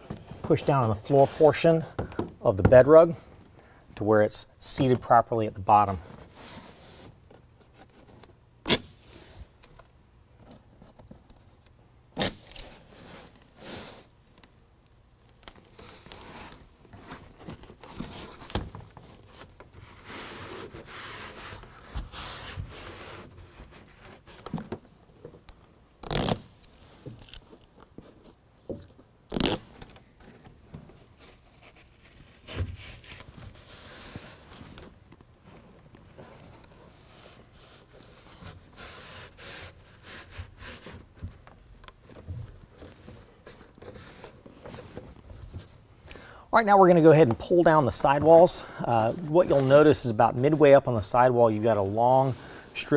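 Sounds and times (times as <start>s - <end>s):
velcro ripping: 8.6s - 9.0s, 12.2s - 12.8s, 26.0s - 27.5s, 29.3s - 29.9s.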